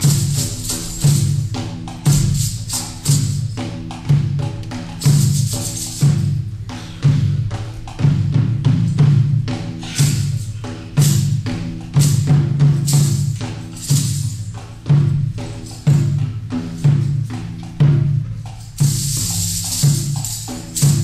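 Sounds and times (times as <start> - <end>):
jingling rattle: 0.0 - 4.1, 4.8 - 6.4, 9.8 - 17.8, 18.4 - 21.0
barrel drum beat: 0.0 - 21.0
frame drum: 0.0 - 21.0.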